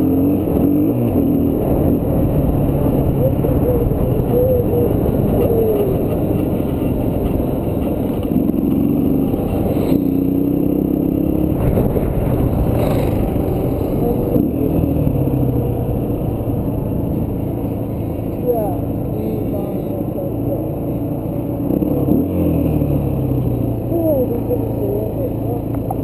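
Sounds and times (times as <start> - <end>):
dirt bike engine revving: 0.0 - 18.0
wind rush on microphone: 11.5 - 17.8.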